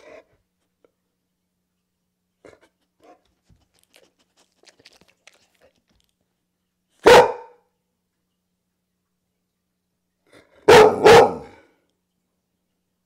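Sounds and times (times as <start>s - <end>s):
dog barking: 7.0s - 7.7s, 10.6s - 11.6s.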